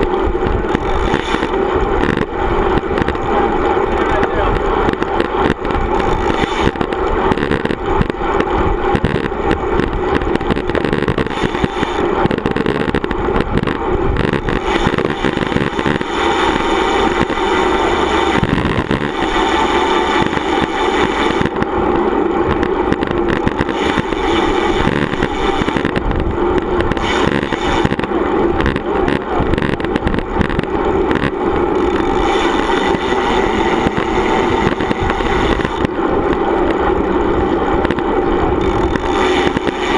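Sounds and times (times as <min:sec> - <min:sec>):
bike tyres rolling on asphalt: 0:00.0 - 0:39.9
wind buffeting microphone: 0:00.0 - 0:39.9.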